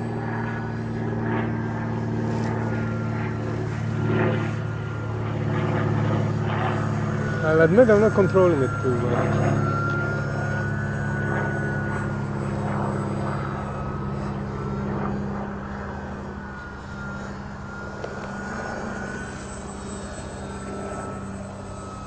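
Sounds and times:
model plane motors whining: 0:00.0 - 0:22.0.

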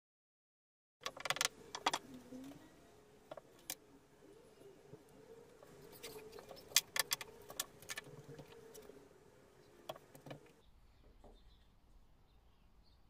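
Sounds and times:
wooden pieces clicking and knocking: 0:01.0 - 0:02.2, 0:05.9 - 0:08.9
steady hum: 0:01.4 - 0:10.6.

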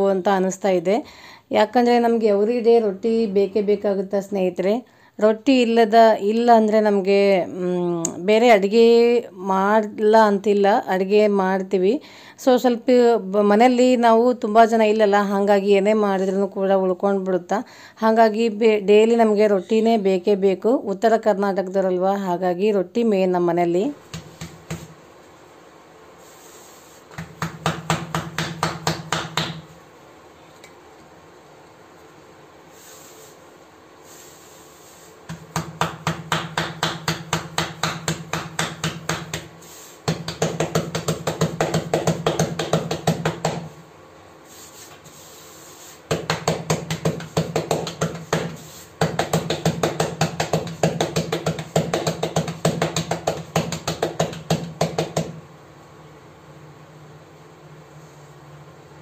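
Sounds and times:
palms slapping dough: 0:24.0 - 0:25.0, 0:26.4 - 0:29.8, 0:34.8 - 0:43.8, 0:44.6 - 0:55.5.

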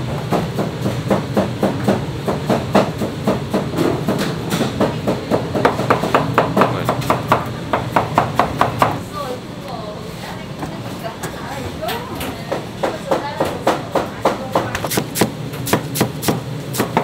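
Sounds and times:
knife chopping on cutting board: 0:13.1 - 0:17.0.

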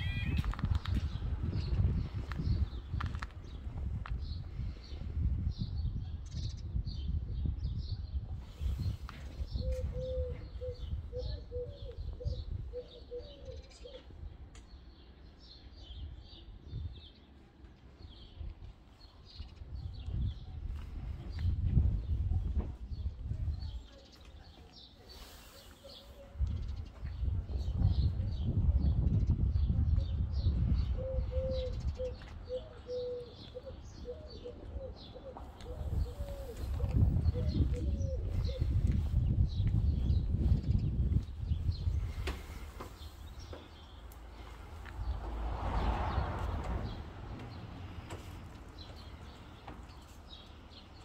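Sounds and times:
small birds chirping: 0:00.0 - 0:45.4, 0:46.1 - 0:51.0
pigeon cooing: 0:09.5 - 0:14.0, 0:30.9 - 0:38.8.

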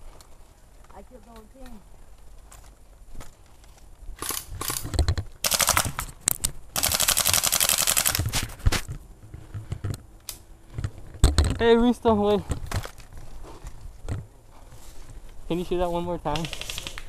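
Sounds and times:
airsoft gun full-auto bursts: 0:05.4 - 0:06.0, 0:06.8 - 0:08.2, 0:16.3 - 0:17.0.

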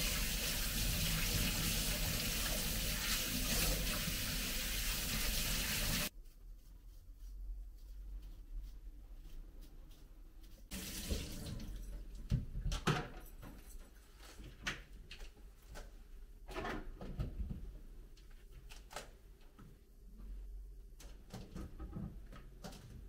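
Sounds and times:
water running from a tap: 0:00.0 - 0:06.1, 0:10.7 - 0:11.9.

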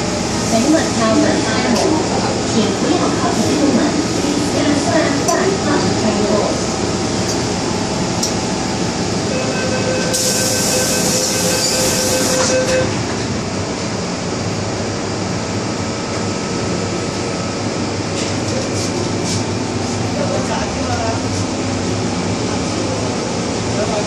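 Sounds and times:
high electric whine: 0:08.9 - 0:13.0.

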